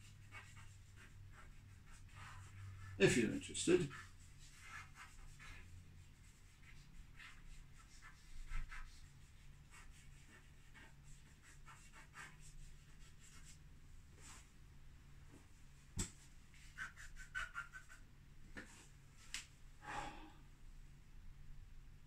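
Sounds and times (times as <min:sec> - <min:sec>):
pastel stick scratching on board: 0:03.8 - 0:13.6.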